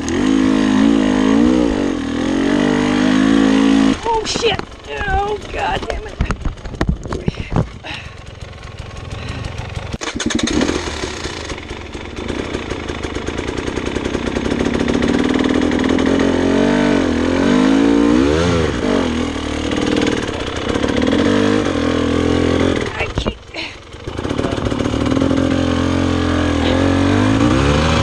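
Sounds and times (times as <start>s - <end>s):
dirt bike engine revving: 0.0s - 28.0s.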